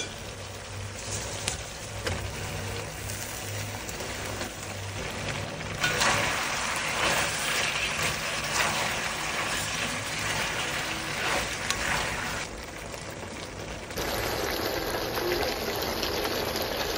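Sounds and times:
sauce sizzling in a wok: 0.0 - 16.9
spatula scraping a wok: 5.8 - 12.4.

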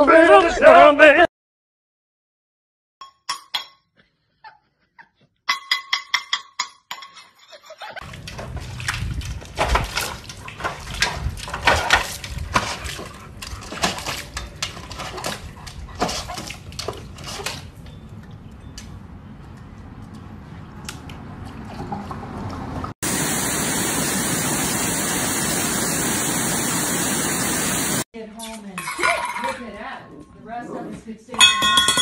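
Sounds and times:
dog splashing in water bowl: 8.0 - 17.7.

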